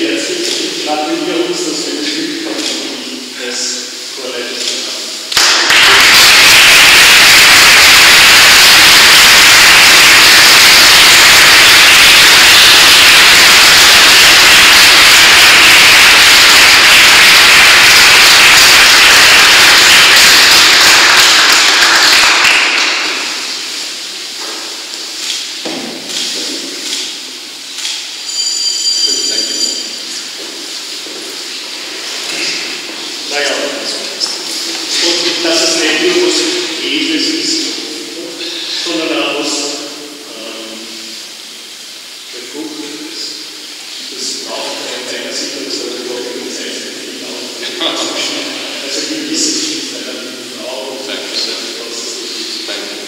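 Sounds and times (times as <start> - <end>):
applause: 5.3 - 23.7.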